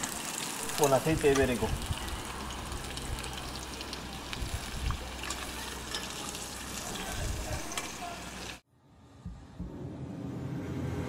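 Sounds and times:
sausage sizzling in a frying pan: 0.0s - 8.6s.

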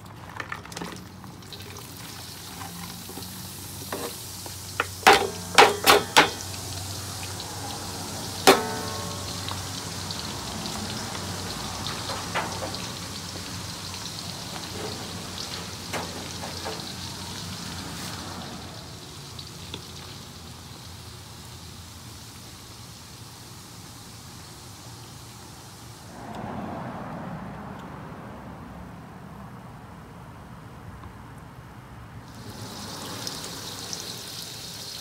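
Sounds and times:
oil sizzling in a wok: 1.3s - 26.2s, 32.3s - 35.0s.

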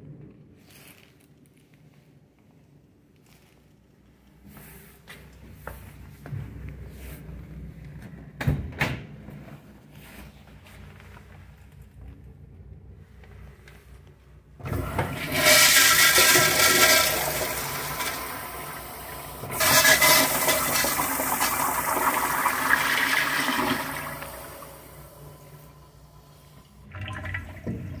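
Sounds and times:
toilet flushing: 14.6s - 28.0s.

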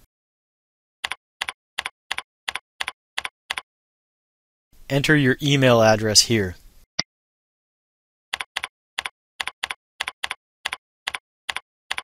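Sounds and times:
keyboard key clicks: 8.4s - 12.0s.

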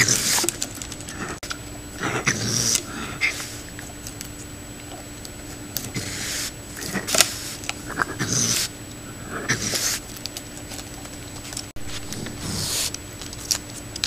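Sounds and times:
raccoon making hissy noises: 5.9s - 10.1s, 11.8s - 13.0s.

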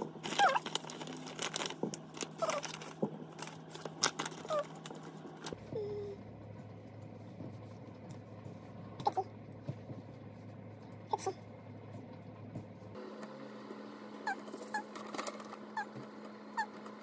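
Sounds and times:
plastic packet crinkling: 0.0s - 5.6s.

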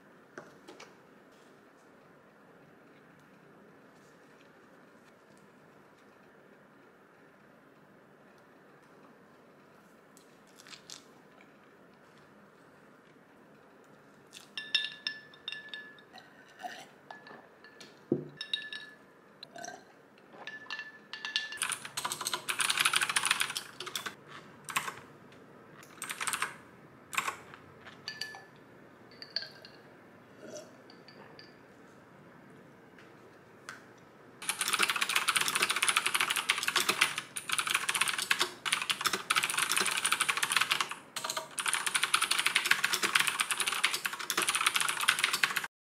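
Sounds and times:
typing on keyboard: 21.2s - 25.0s, 25.8s - 27.5s, 34.4s - 45.7s.

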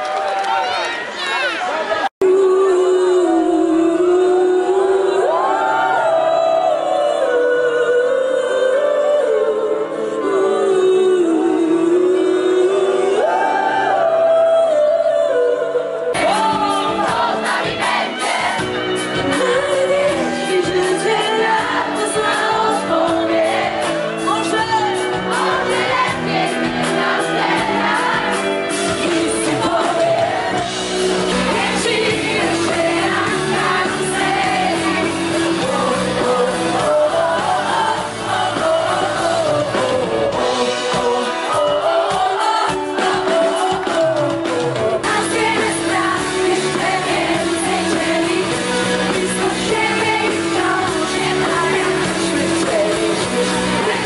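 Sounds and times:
woman singing into a microphone: 2.2s - 54.0s
amplified band with drums: 16.2s - 54.0s.

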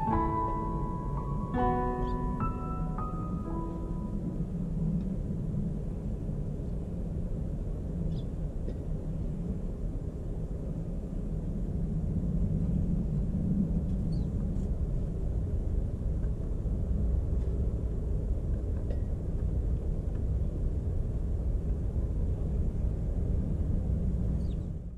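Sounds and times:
bird chirps: 1.2s - 3.4s.

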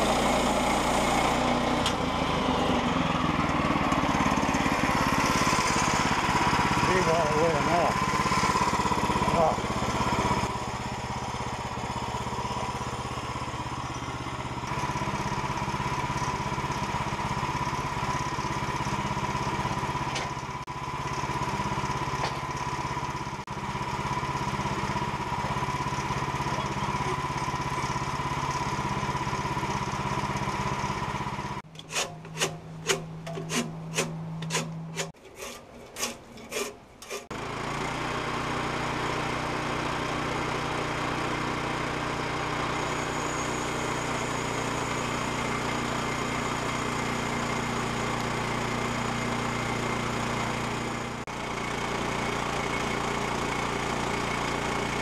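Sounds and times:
gas engine running: 0.0s - 55.0s.

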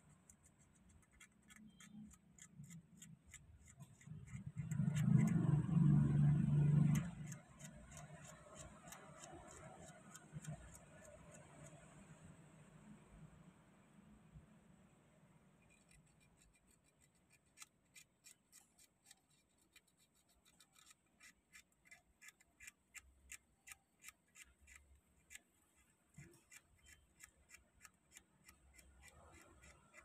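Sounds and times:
sandpaper scratching metal: 15.7s - 22.8s.

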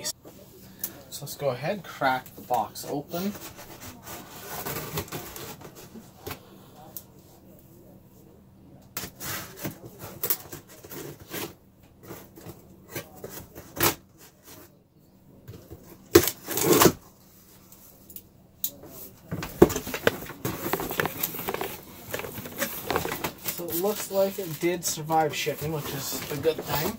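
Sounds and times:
cardboard scraping and rubbing: 3.2s - 6.1s, 16.2s - 17.0s, 19.3s - 26.9s
packing tape being cut: 16.1s - 17.0s
cardboard flaps rustling: 19.3s - 26.9s.

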